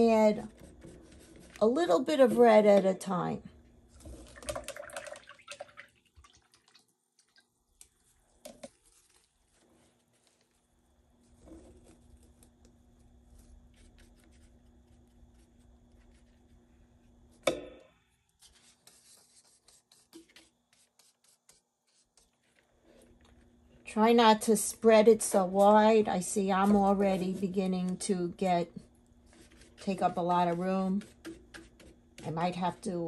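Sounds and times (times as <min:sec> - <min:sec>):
paintbrush scraping on paper plate: 0:00.0 - 0:02.7, 0:18.4 - 0:23.4, 0:24.4 - 0:33.0.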